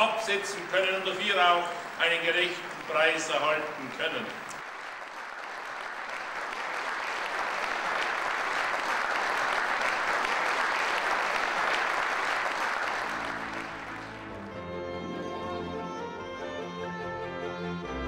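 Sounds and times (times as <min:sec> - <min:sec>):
audience applauding: 0:02.2 - 0:14.8.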